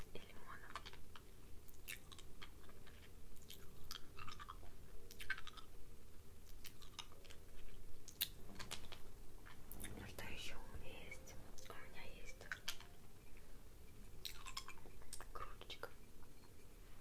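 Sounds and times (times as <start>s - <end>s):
wet mouth clicks and lip smacks: 1.7s - 5.7s, 8.1s - 9.0s, 14.2s - 15.4s.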